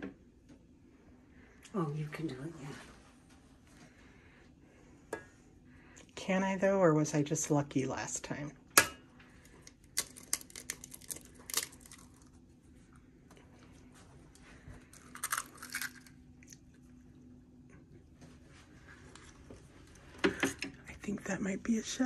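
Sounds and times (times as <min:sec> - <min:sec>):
eggs cracking on steel bowl: 0:08.7 - 0:12.4, 0:14.9 - 0:16.6.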